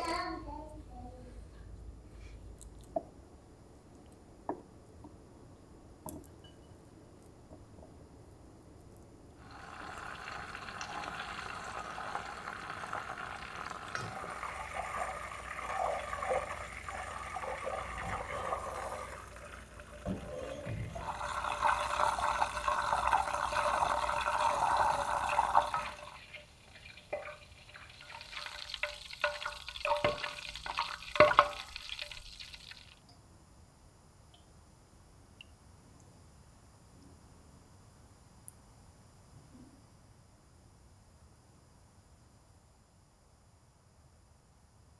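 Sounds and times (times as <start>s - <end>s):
butter sizzling in a saucepan: 9.4s - 33.0s.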